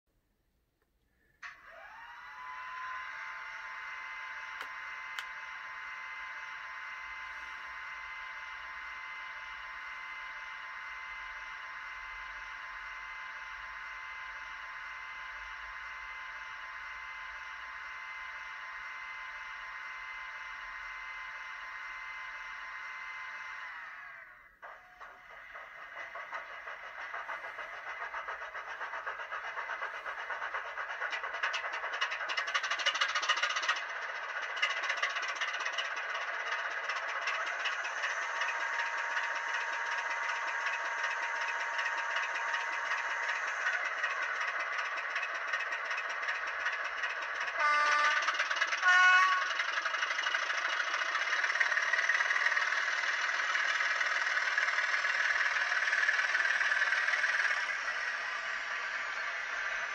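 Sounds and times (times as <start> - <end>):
diesel engine through tiny speaker: 36.3 - 59.9
two-tone horn: 47.5 - 49.6.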